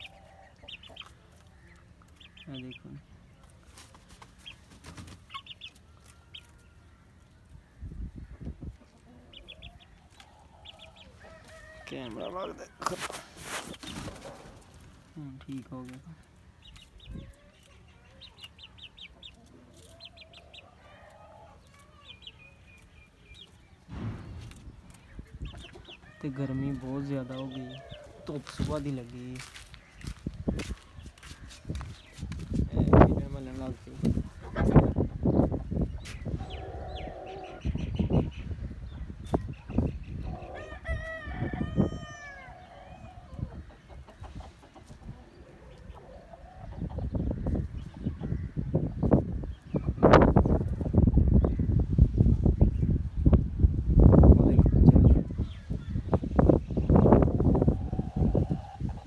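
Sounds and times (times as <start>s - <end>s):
low knocks: 23.9s - 25.2s
chicken calling: 25.2s - 31.6s, 34.2s - 38.3s, 39.3s - 48.4s, 56.8s - 59.0s
chicken clucking softly: 39.0s - 48.4s.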